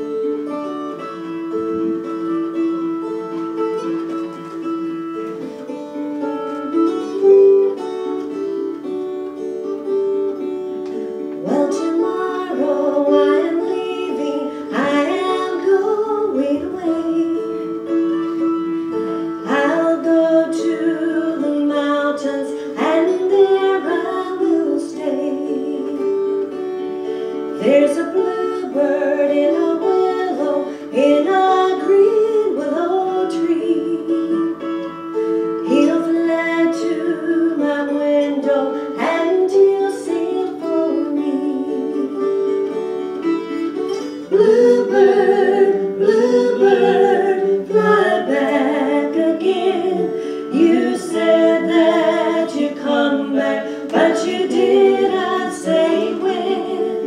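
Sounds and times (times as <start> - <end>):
acoustic guitar and dulcimers: 0.0 - 57.0
woman singing: 11.4 - 18.6, 19.3 - 26.8, 27.5 - 43.0, 43.7 - 57.0.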